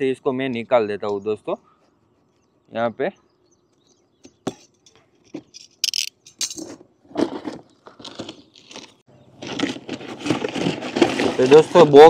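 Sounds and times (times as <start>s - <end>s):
packaging rustling: 7.2s - 12.0s.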